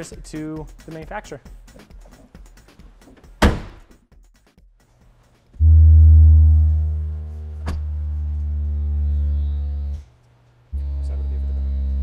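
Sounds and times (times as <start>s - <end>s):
deep bass test tone: 5.6s - 10.0s.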